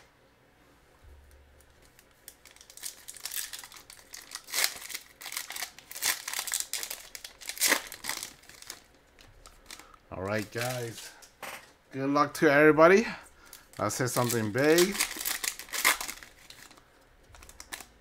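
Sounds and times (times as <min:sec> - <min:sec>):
foil wrapper crinkling and tearing: 0:01.8 - 0:11.2, 0:13.4 - 0:18.0.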